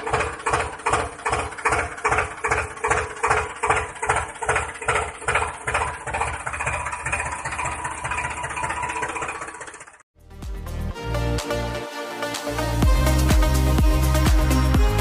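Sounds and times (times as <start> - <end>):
engine-like chugging: 0.0 - 10.1.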